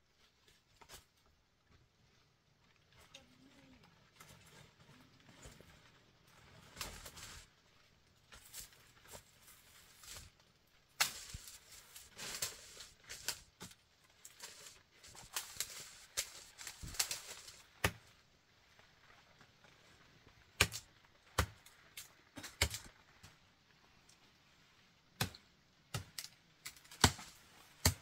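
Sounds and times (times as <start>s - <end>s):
dry leaves rustling underfoot: 3.2s - 20.0s.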